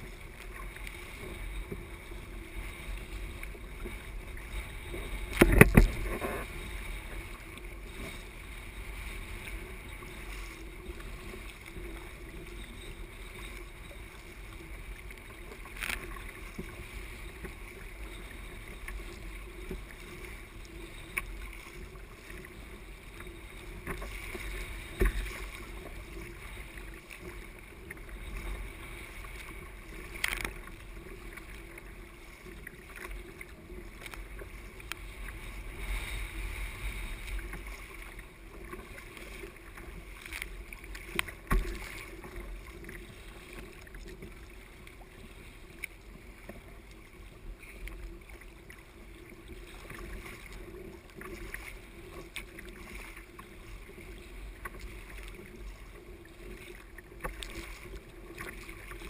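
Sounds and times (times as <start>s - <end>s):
kayak paddle splashing water: 0.0s - 59.0s
wind rumbling on microphone: 0.0s - 59.0s.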